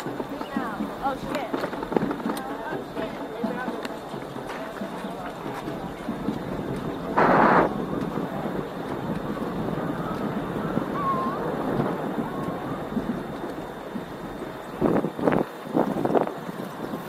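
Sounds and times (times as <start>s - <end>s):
outdoor rumble: 0.0s - 17.0s
wind noise on microphone: 0.0s - 17.0s
loud burst of noise: 7.0s - 15.8s.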